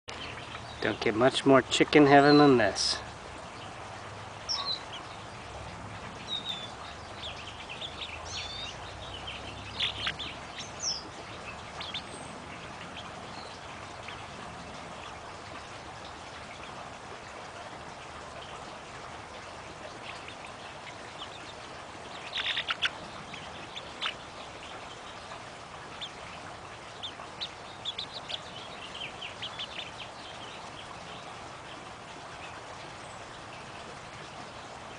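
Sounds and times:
chickens calling: 0:04.5 - 0:16.8, 0:19.8 - 0:32.6.

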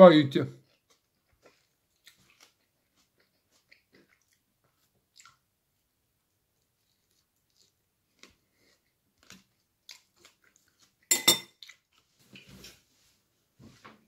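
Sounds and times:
person chewing: 0:00.6 - 0:05.5, 0:06.5 - 0:12.8.

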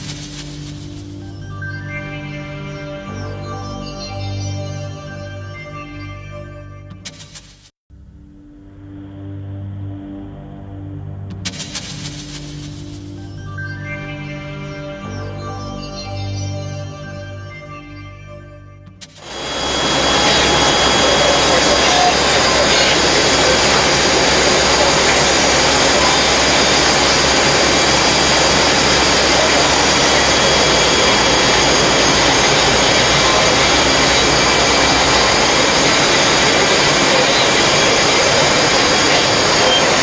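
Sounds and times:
cnc lathe running: 0:19.2 - 0:40.0
faint whining tones: 0:19.3 - 0:40.0.

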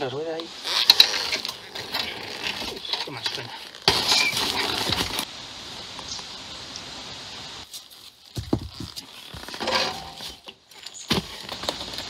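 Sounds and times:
rustling and scraping: 0:00.6 - 0:05.3, 0:07.6 - 0:12.0
motorcycle knocking on rocks: 0:08.4 - 0:09.5.

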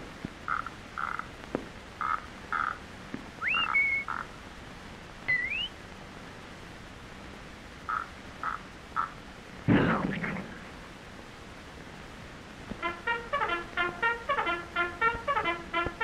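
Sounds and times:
optical soundtrack hiss: 0:00.0 - 0:16.0
rising whistle slides: 0:03.4 - 0:04.1, 0:05.3 - 0:05.7
short cartoon blips: 0:05.3 - 0:05.7.

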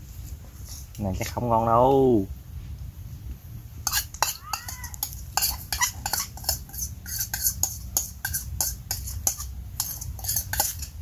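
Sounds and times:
metal spoon scraping bowl: 0:03.8 - 0:11.0.

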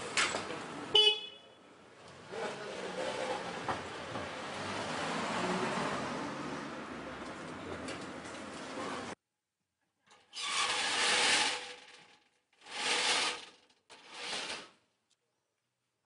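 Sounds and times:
wooden shutters scraping: 0:10.2 - 0:14.8.

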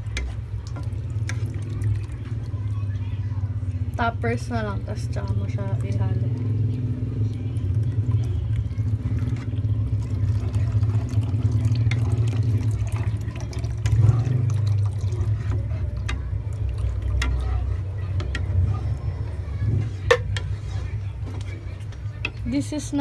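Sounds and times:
wooden spatula stirring: 0:00.0 - 0:02.8, 0:07.6 - 0:23.0
milk pouring into sauce: 0:00.0 - 0:04.0, 0:05.0 - 0:22.4
sauce simmering in a pan: 0:00.0 - 0:23.0.

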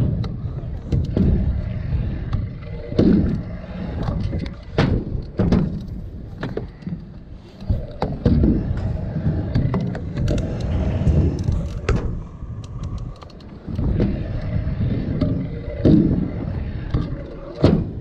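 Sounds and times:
scooter wheels rolling on concrete: 0:00.0 - 0:18.0
scooter deck clacking and thudding: 0:02.3 - 0:07.0, 0:07.6 - 0:13.0.

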